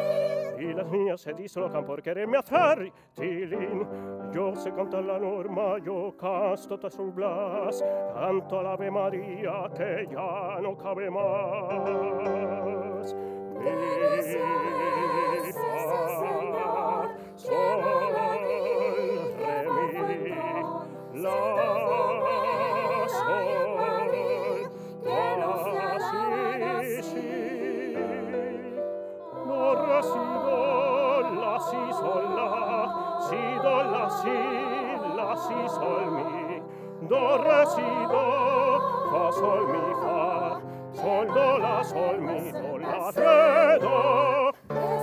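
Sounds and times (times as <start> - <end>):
piano accompaniment: 0.0 - 45.0
man singing operatically: 0.5 - 16.9, 19.5 - 23.8, 29.4 - 44.7.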